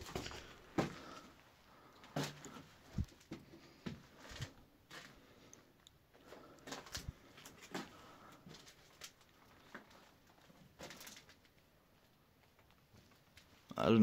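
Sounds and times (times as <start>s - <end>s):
footsteps on dusty floor: 0.0s - 1.2s.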